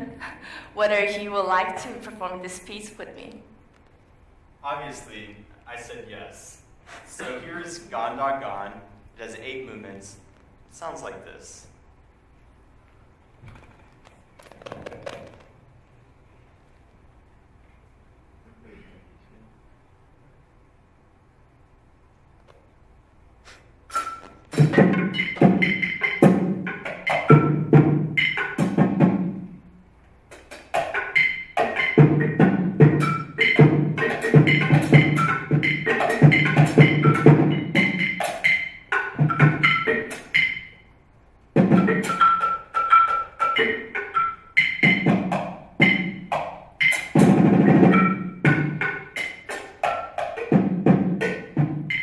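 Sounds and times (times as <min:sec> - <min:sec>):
mallets on small drum: 0:24.5 - 0:29.3, 0:30.8 - 0:40.8, 0:41.6 - 0:52.0.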